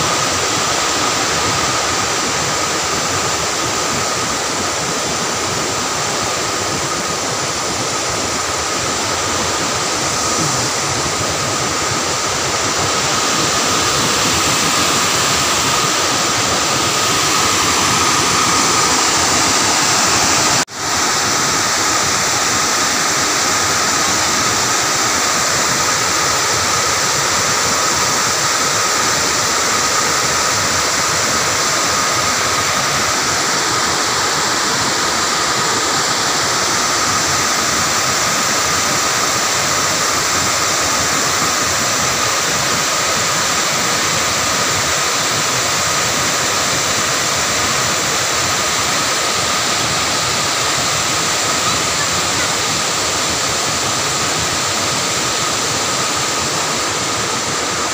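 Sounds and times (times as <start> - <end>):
water spilling over dam: 0.0 - 57.9.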